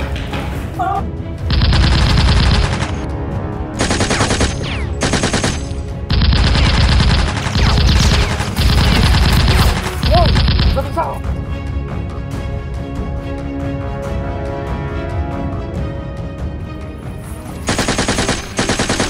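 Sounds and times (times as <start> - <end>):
background music: 0.0 - 19.0
machine-gun sound effects: 1.5 - 3.0, 3.8 - 10.9, 17.7 - 19.0.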